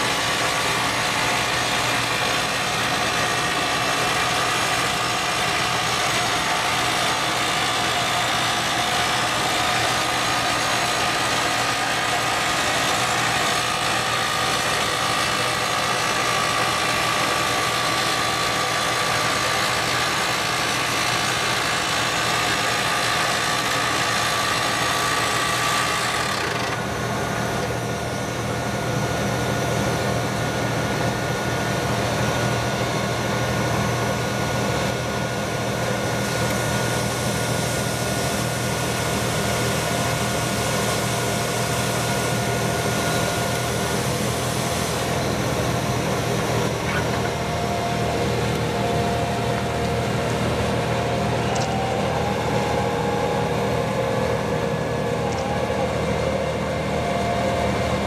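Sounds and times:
rock drill drilling into rock: 0.0s - 27.0s.

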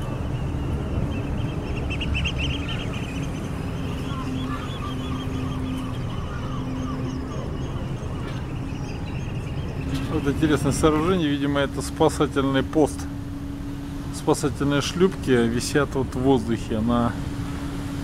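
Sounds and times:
wind rumble: 0.0s - 11.9s
ferry engine rumble: 0.0s - 18.0s
gulls crying: 0.0s - 18.0s.

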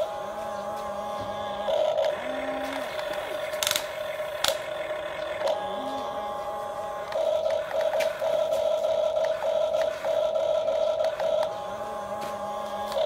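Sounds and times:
toy excavator motor whine: 0.0s - 13.0s
sharp clicks: 3.0s - 4.8s.

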